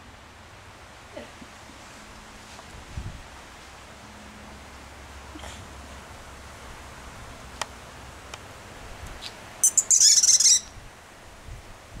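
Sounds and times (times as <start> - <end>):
small bird twittering: 9.6 - 10.8.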